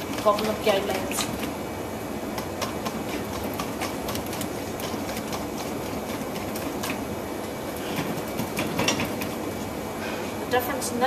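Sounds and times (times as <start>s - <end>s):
whisk clicking and scraping metal bowl: 0.0s - 1.5s, 2.4s - 7.1s, 7.8s - 9.5s.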